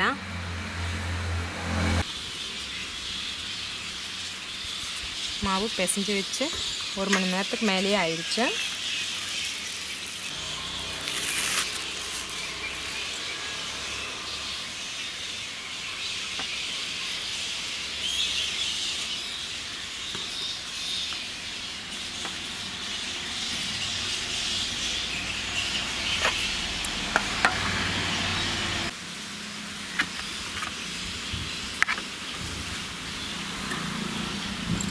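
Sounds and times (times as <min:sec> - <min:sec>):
plastic cling film rustling: 0:08.2 - 0:13.2.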